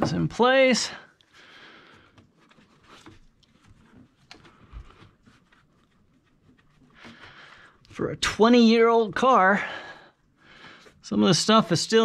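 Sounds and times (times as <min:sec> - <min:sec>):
soft rustle: 0:01.2 - 0:09.8.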